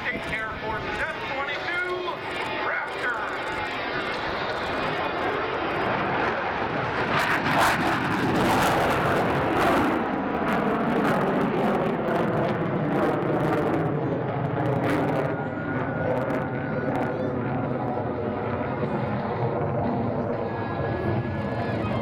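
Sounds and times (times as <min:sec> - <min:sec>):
jet engine roar: 0:00.0 - 0:22.0.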